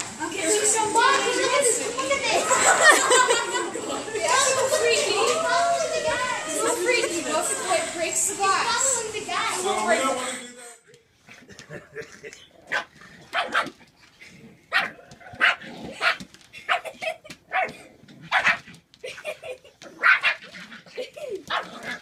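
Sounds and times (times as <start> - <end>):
puppy yapping: 12.6 - 13.8, 14.7 - 18.7, 19.9 - 22.0.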